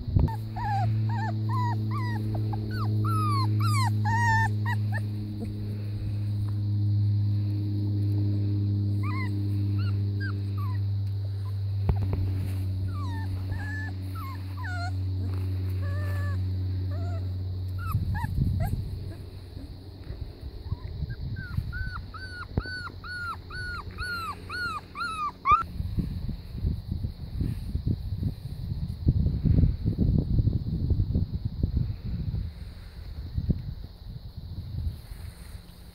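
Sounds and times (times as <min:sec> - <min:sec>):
low mechanical hum: 0:00.0 - 0:35.9
puppies whimpering and yipping: 0:00.2 - 0:05.6, 0:09.0 - 0:19.8, 0:20.7 - 0:25.7.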